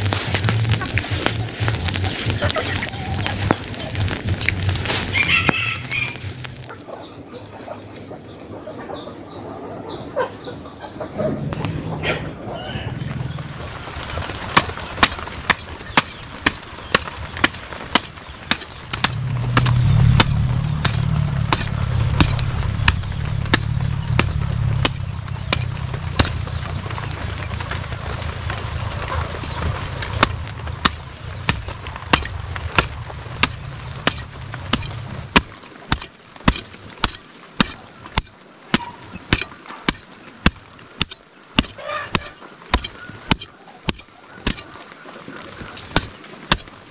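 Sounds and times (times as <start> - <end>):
hoe chopping dry soil: 14.1 - 27.6, 30.0 - 44.8, 45.6 - 46.9.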